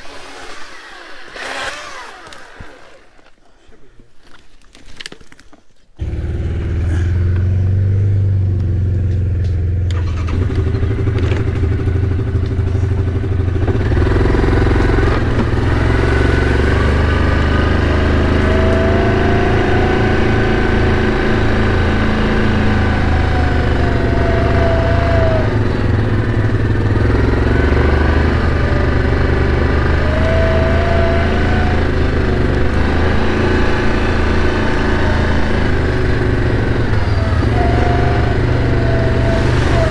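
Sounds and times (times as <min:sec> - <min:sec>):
atv engine running: 0:06.0 - 0:39.9.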